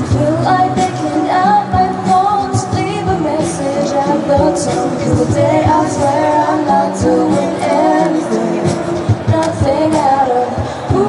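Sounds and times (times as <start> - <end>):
group singing in harmony: 0.0 - 11.0.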